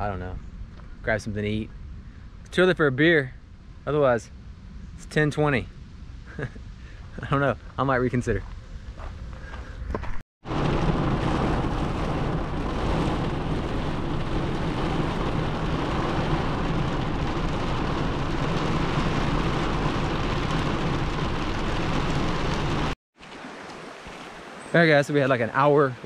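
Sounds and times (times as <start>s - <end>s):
heavy rain on car roof: 10.4s - 23.0s.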